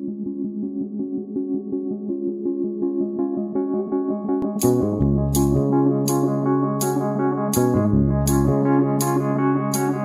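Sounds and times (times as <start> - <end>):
keyboard playing run of notes: 0.0 - 10.0
deep bass: 4.5 - 6.0, 7.5 - 8.8
crisp high beat: 4.6 - 10.0.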